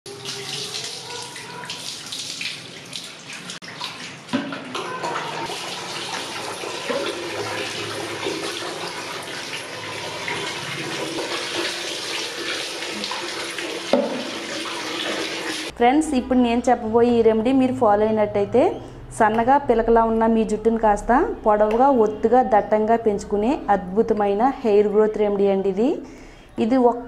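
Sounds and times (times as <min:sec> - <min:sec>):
water pouring over hair: 0:00.1 - 0:15.7.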